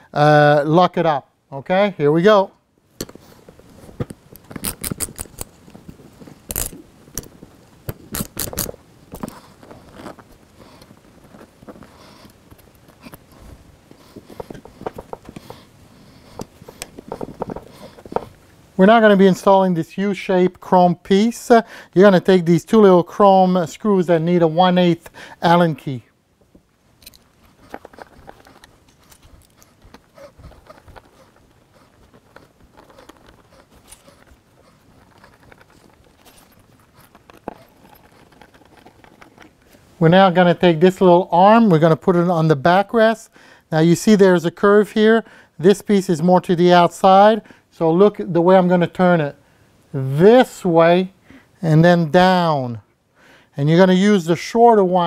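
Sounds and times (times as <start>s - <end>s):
metal nuts clicking and scraping: 4.4s - 5.7s, 6.5s - 7.3s, 27.0s - 39.8s.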